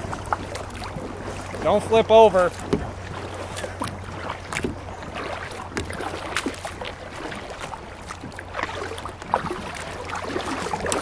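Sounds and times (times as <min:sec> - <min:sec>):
paddle splashing in water: 0:00.0 - 0:11.0
light paddle knocks: 0:02.1 - 0:06.6.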